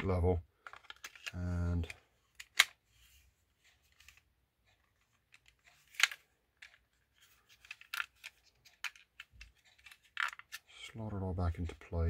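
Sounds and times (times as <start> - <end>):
plastic toy parts clicking: 0.6 - 2.8, 4.9 - 10.7.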